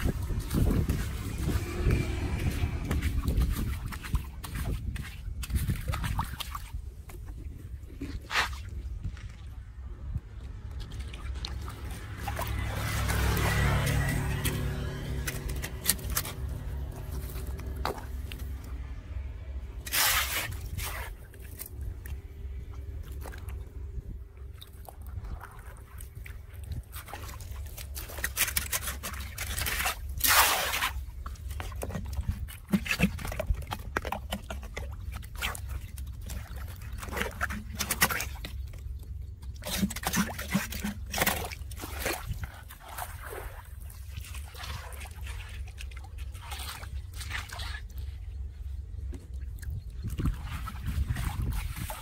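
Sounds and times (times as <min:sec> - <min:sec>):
water splashing: 0:00.0 - 0:52.0
hand rake scraping: 0:12.6 - 0:18.6, 0:19.8 - 0:21.5.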